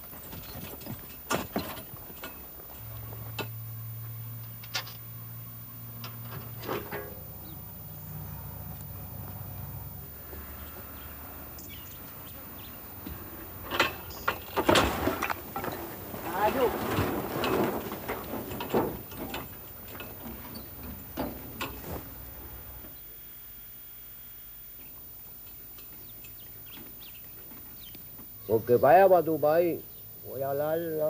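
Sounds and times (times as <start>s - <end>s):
low steady hum: 0.0s - 31.0s
cart load clattering onto heap: 0.2s - 2.4s, 6.3s - 7.2s, 13.6s - 22.6s.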